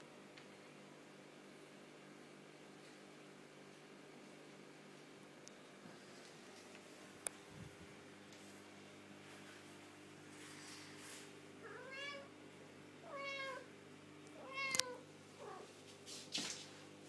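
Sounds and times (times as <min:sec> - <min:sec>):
cat meowing: 0:11.6 - 0:12.3, 0:13.0 - 0:13.7, 0:14.4 - 0:15.7.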